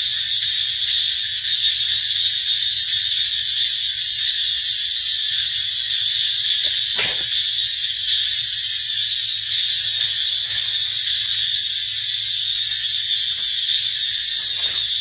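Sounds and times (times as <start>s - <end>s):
insects droning: 0.0s - 15.0s.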